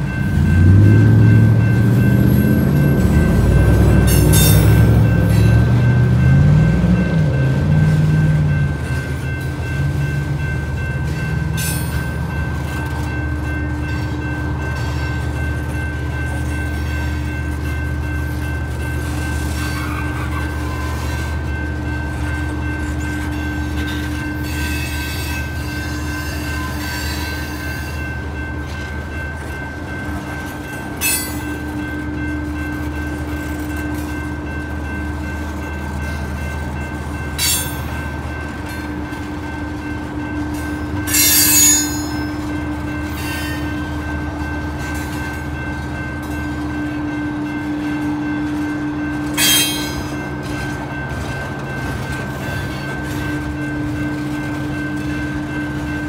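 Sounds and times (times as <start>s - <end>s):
train cars rumbling: 0.0s - 56.0s.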